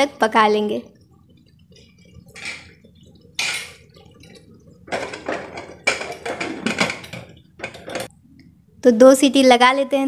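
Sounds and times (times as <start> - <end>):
metal lid clattering: 2.3 - 2.8, 3.4 - 4.0, 4.8 - 8.1
metal lid scraping: 2.3 - 2.8, 3.4 - 8.1.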